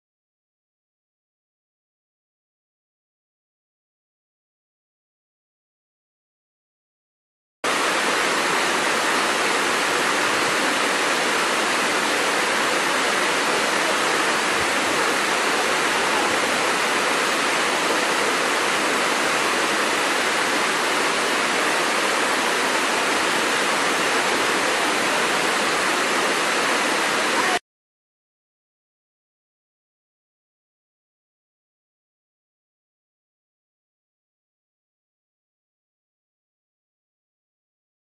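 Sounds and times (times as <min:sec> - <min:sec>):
waterfall rushing over rocks: 0:07.7 - 0:27.6.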